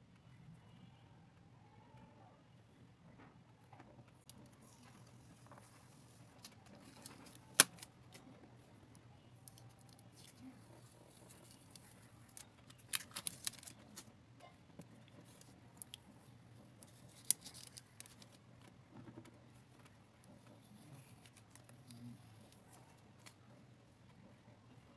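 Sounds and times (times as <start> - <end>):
adhesive tape peeling crackles: 6.4 - 7.9, 9.4 - 14.1, 16.8 - 18.4.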